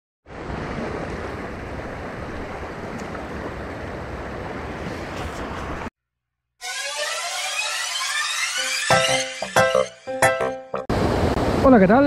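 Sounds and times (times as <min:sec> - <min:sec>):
shallow river running over stones: 0:00.3 - 0:05.9
wind rumbling on microphone: 0:00.3 - 0:05.9.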